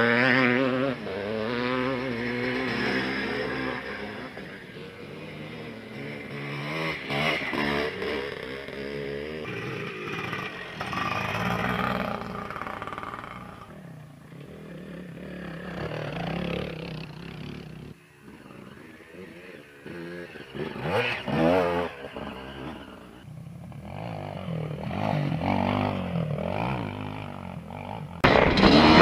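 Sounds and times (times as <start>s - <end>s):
dirt bike engines revving: 0.0s - 29.0s.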